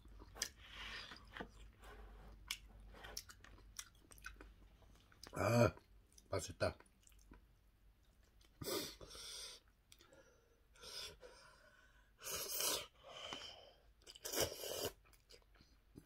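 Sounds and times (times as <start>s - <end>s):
quiet chewing: 0.0s - 8.6s
person slurping noodles: 12.2s - 12.9s, 14.1s - 15.0s.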